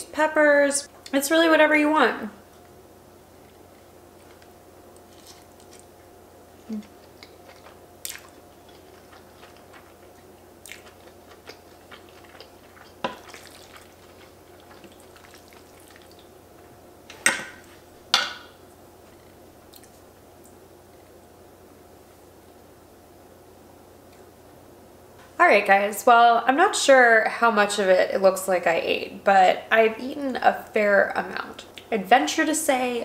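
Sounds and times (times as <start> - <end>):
faint steady hum: 0.0 - 33.0
chewing with wet mouth clicks: 6.8 - 16.3, 19.1 - 20.6.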